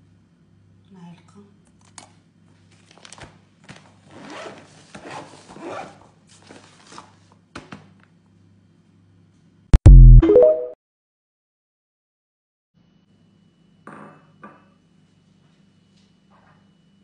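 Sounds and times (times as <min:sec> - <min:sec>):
electronic logo jingle: 0:09.8 - 0:10.8.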